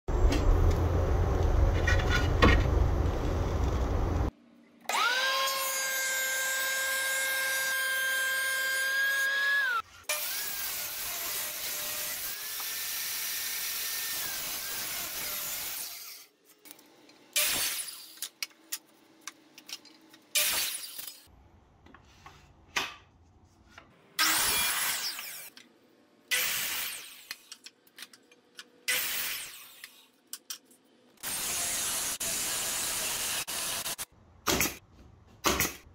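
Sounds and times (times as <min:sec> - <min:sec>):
miter saw cutting wood boards: 0:04.9 - 0:16.3.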